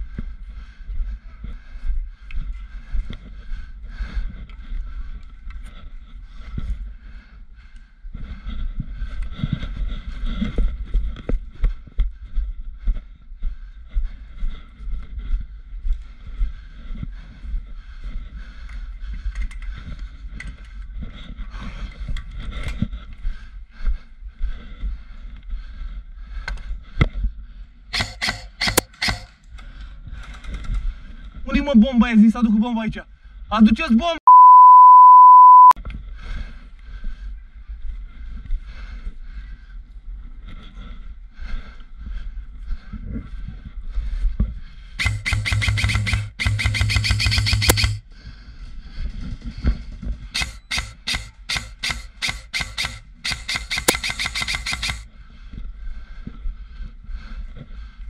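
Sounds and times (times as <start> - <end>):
airsoft rifle full-auto bursts: 28.0 - 29.3, 45.0 - 48.0, 50.4 - 55.0
gearbox motor whir: 45.0 - 48.0.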